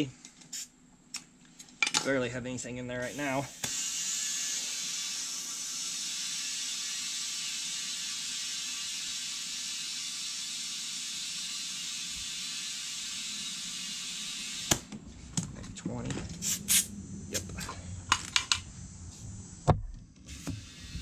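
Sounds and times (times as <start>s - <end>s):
compressed air hissing into tire: 16.3s - 19.6s, 20.3s - 21.0s.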